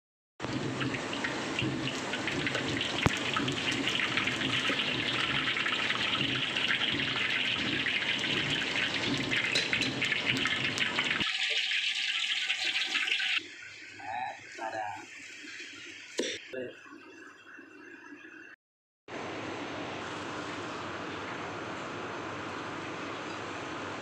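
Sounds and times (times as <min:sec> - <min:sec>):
hot oil sizzling in a wok: 0:00.4 - 0:13.4.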